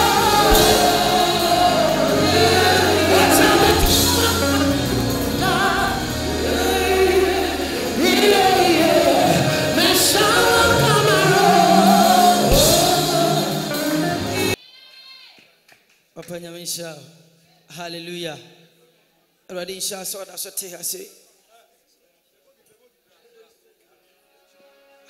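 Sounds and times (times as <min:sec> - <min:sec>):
backing choir voices: 0:00.0 - 0:14.6
gospel band with bass line: 0:00.0 - 0:14.6
man singing into a microphone: 0:00.0 - 0:14.6.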